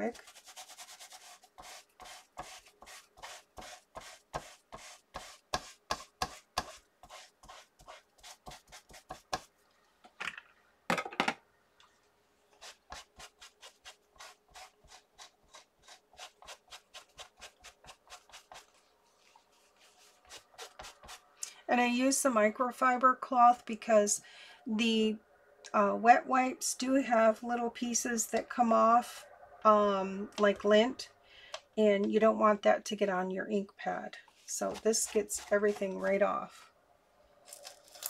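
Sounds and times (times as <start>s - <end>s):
cloth rubbing on acrylic plate: 12.6s - 21.2s, 34.3s - 36.6s.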